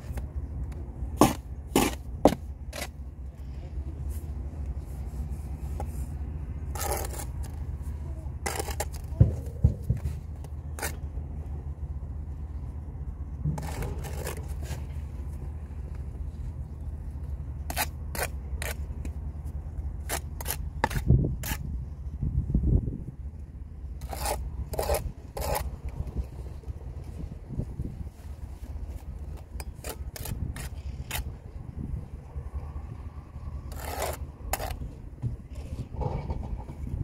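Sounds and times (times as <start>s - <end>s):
steady low rumble: 0.0s - 37.0s
trowel scraping mortar: 1.2s - 3.0s, 5.8s - 7.7s, 8.4s - 11.0s, 13.5s - 15.0s, 24.0s - 25.8s, 29.4s - 31.4s, 33.6s - 34.9s.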